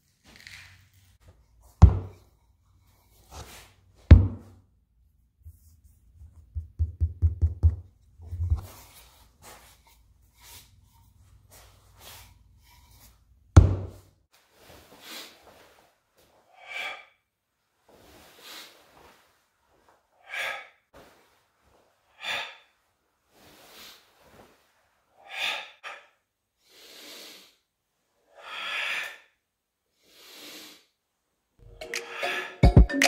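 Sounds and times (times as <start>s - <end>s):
hard knocks on workbench: 1.8s - 2.2s, 4.1s - 4.5s.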